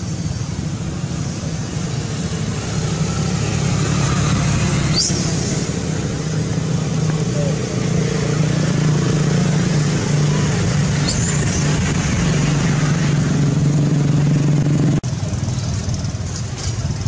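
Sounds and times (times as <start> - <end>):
brief high squeak: 4.9 - 5.7, 11.0 - 11.6.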